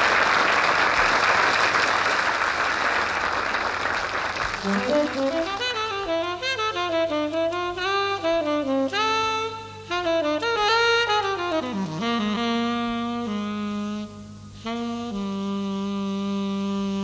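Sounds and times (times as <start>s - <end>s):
jazz saxophone playing: 4.3s - 17.0s.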